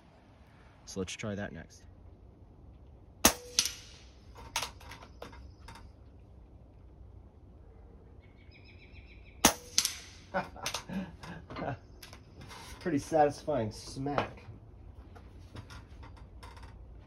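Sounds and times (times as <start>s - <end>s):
air rifle firing: 3.2s - 4.2s, 9.4s - 10.3s
pellet smacking steel target: 3.2s - 4.8s, 9.4s - 10.4s
light knocks of targets: 3.2s - 6.0s, 9.4s - 12.2s.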